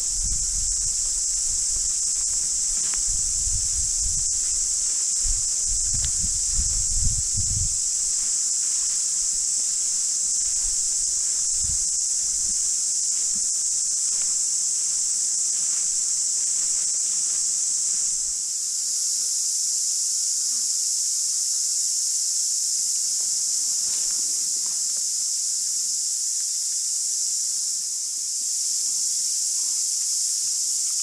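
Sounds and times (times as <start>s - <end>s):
footsteps through long grass: 0.0s - 18.4s
cicadas singing: 0.0s - 31.0s.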